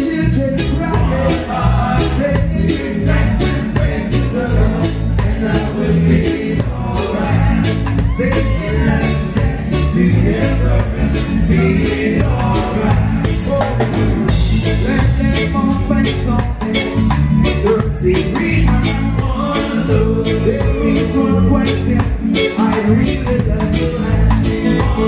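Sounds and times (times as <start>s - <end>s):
drum kit beat: 0.0s - 25.0s
heavy bass: 0.0s - 25.0s
man singing: 0.0s - 25.0s
reggae band playing: 0.0s - 25.0s.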